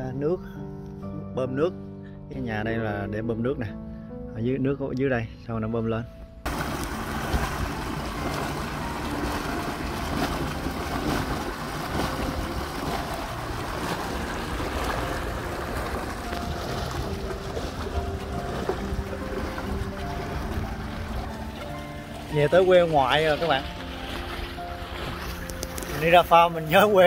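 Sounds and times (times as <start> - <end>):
water gushing into a channel: 6.5 - 26.1.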